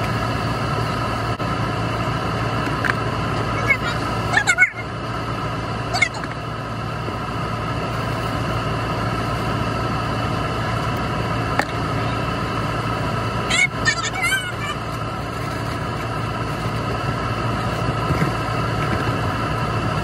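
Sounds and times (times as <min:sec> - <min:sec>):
motor hum: 0:00.0 - 0:20.0
toddler squealing: 0:13.5 - 0:14.8.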